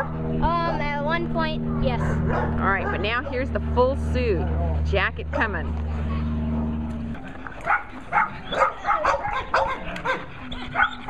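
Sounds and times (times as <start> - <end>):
steady low hum: 0.0 - 11.0
dog barking rapidly: 1.8 - 3.4, 7.6 - 11.0.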